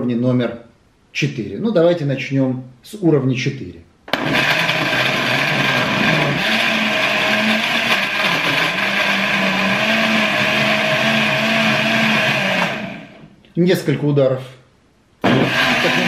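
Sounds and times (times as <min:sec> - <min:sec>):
blender motor whirring: 0:04.1 - 0:13.2, 0:15.2 - 0:16.0.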